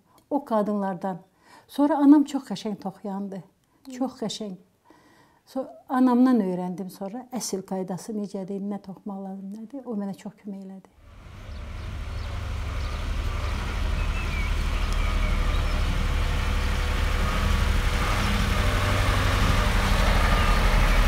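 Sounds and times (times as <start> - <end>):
diesel truck engine rumbling: 11.0 - 21.0.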